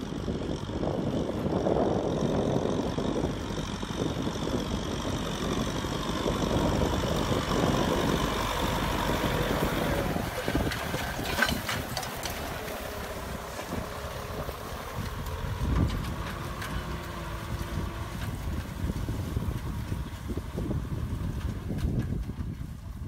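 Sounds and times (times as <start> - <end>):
tractor diesel engine under load: 0.0 - 23.0
sharp clicks and knocks: 10.5 - 12.8.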